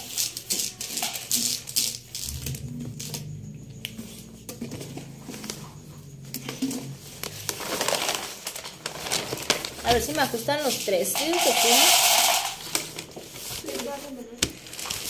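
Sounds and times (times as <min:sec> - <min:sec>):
wrapping paper rustling: 0:00.0 - 0:02.3, 0:07.2 - 0:15.0.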